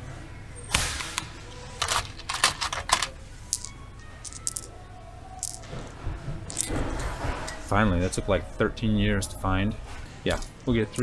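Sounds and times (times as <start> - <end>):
metal nuts clinking: 1.8 - 4.7, 5.4 - 5.6, 6.5 - 6.8.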